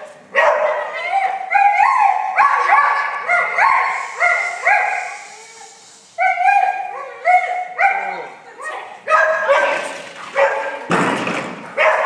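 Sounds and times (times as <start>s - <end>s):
dog barking in high yaps: 0.3s - 5.4s, 6.2s - 8.3s, 9.1s - 10.9s, 11.8s - 12.0s.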